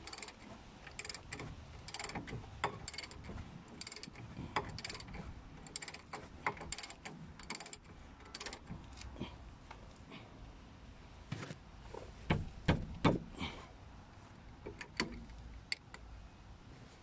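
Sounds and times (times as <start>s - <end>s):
ratchet wrench clicking: 0.0s - 8.7s, 14.7s - 16.0s.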